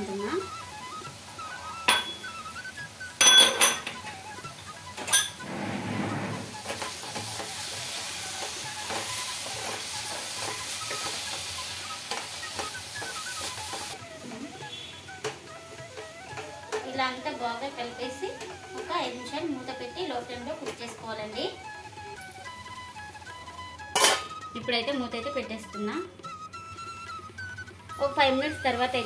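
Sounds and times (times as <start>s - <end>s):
mixture sizzling in pan: 0.0s - 25.3s
metal spatula clinking on pan: 1.9s - 2.4s, 3.2s - 4.2s, 5.0s - 5.4s, 23.9s - 24.4s.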